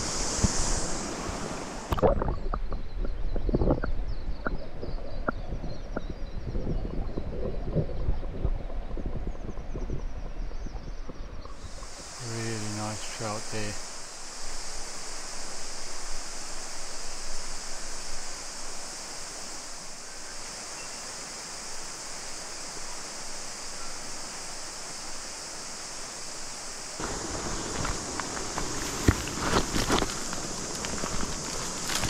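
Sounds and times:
river running: 0.0 - 2.4, 11.5 - 32.0
cicadas droning: 0.0 - 32.0
footsteps crunching on stones: 27.0 - 32.0.

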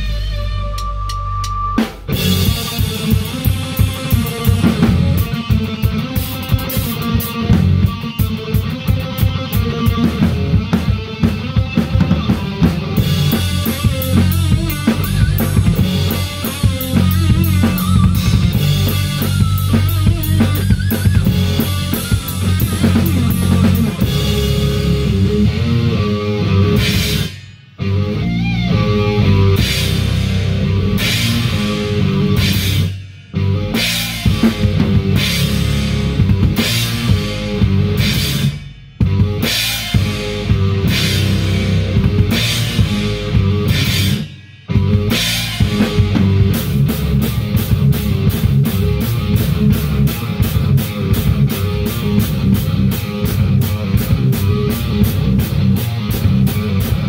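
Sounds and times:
drum kit: 0.0 - 57.0
electric guitars: 0.0 - 57.0.

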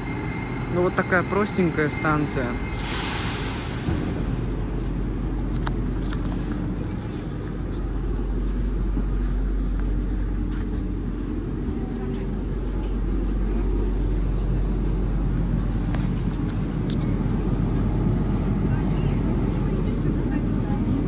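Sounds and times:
metro train rumbling: 0.0 - 21.0.

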